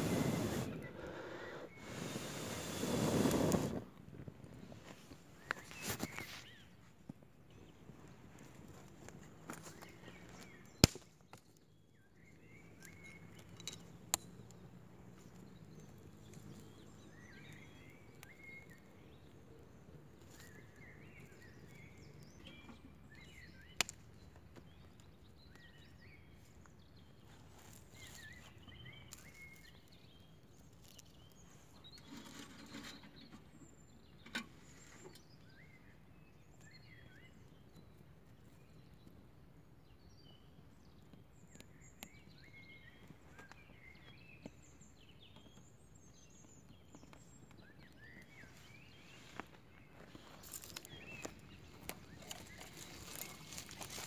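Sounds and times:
twigs snapping and rustling: 9.0s - 11.7s, 29.0s - 29.8s, 50.0s - 54.0s.

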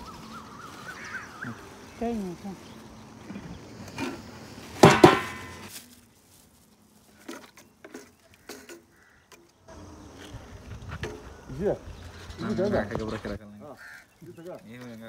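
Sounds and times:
metal pot lid clanking: 4.8s - 5.7s.

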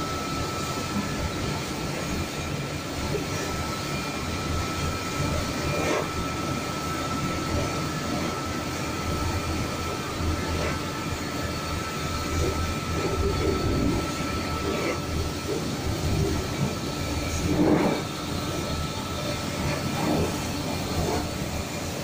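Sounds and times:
rotating brushes scrubbing: 3.0s - 22.0s
water spraying: 14.6s - 18.7s.

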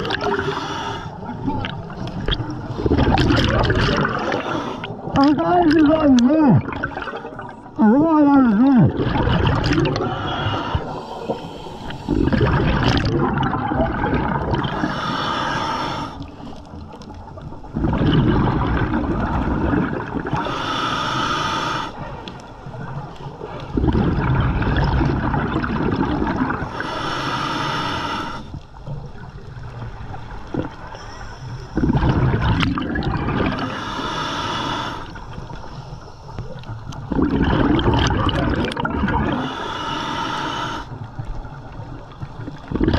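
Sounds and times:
exhaust bubbles bubbling: 0.0s - 0.4s, 1.4s - 4.4s, 8.7s - 10.9s, 12.1s - 15.0s, 17.6s - 20.4s, 23.7s - 26.7s, 31.8s - 33.8s, 37.0s - 39.4s, 41.0s - 42.9s.

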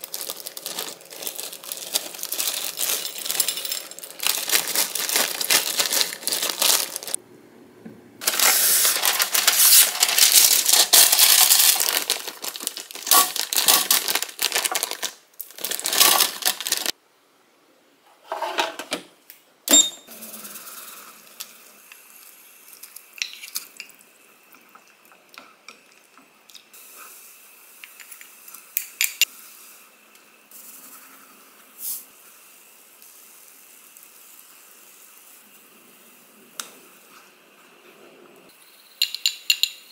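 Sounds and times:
plastic bag crinkling: 0.0s - 7.2s, 8.2s - 16.9s.

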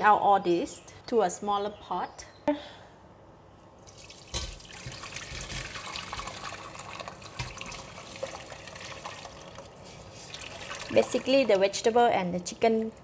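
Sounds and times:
stock pouring and splashing: 3.9s - 11.7s.

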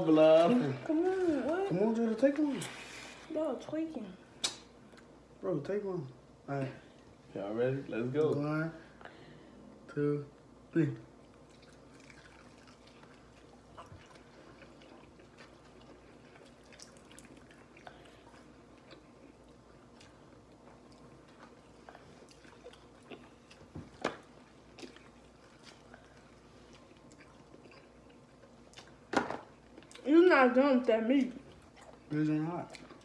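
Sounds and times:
people chewing food: 4.4s - 5.3s, 8.1s - 30.1s, 30.7s - 33.0s.

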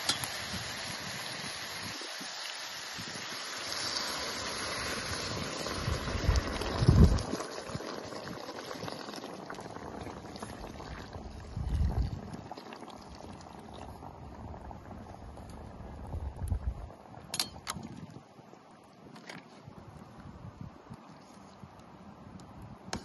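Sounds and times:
water pouring into a pot: 0.0s - 14.8s.

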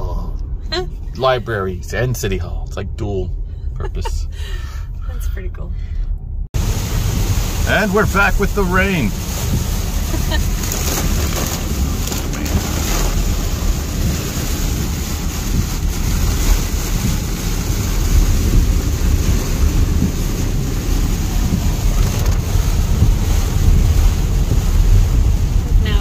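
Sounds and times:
heavy rain on a car: 6.6s - 26.0s
tyres hissing on wet road: 6.6s - 26.0s.

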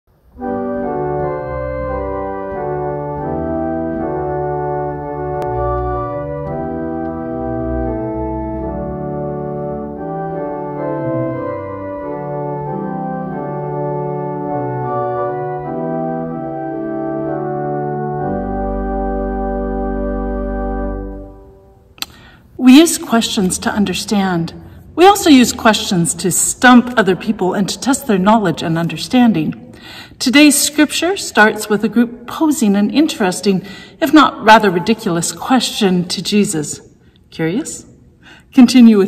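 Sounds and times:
organ chords: 0.1s - 29.6s.

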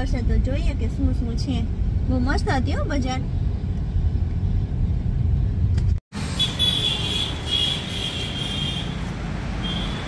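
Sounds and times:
street traffic: 0.0s - 10.0s.

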